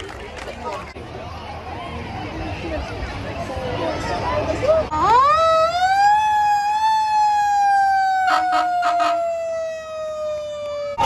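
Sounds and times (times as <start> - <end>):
fire engine siren wailing: 4.9 - 11.0.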